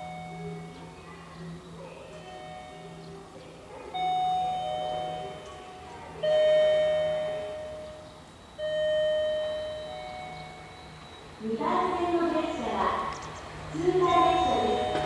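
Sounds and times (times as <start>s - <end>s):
bell-like chime tones: 4.0s - 11.4s, 14.0s - 15.0s.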